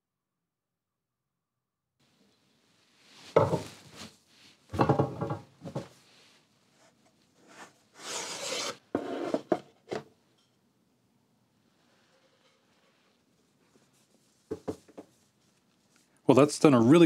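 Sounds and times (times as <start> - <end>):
paper rubbing and sliding: 8.0 - 8.8.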